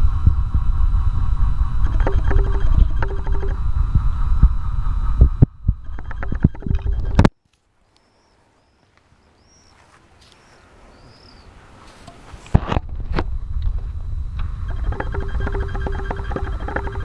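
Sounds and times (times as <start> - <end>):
bird chirps: 7.9 - 11.6
electric seat actuator whining: 14.4 - 17.0.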